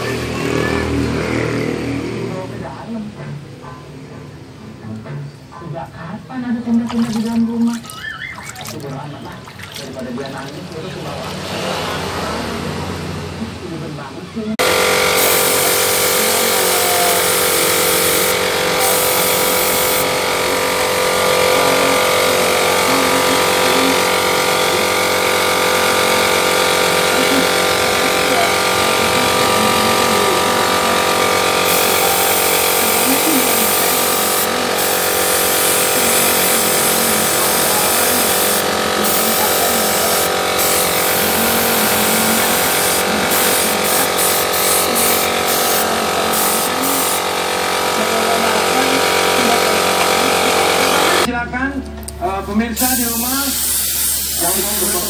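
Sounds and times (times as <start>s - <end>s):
air compressor motor hum: 14.6s - 51.3s, 52.0s - 55.0s
airbrush hissing: 14.6s - 51.3s, 52.8s - 55.0s.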